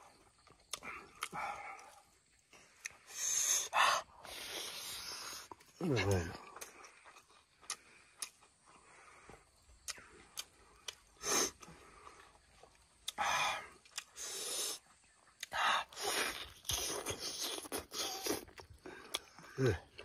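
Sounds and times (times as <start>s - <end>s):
biting and chewing: 0.1s - 3.2s, 4.3s - 20.0s
lip smacks while eating: 0.4s - 2.0s, 2.6s - 3.2s, 6.4s - 8.5s, 9.8s - 11.8s, 12.6s - 19.5s.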